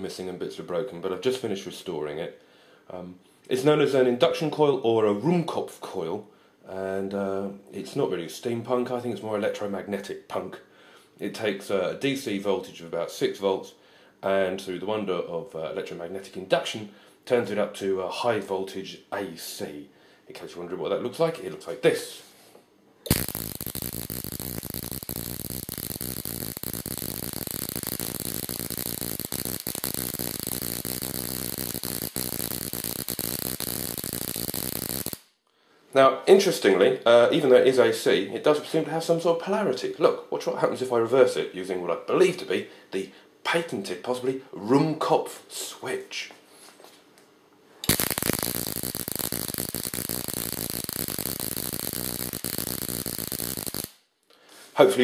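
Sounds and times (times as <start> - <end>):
induction coil interrupter buzzing: 23.1 - 35.2, 47.9 - 53.9
spark arc crackling: 23.1 - 35.3, 47.8 - 54.0.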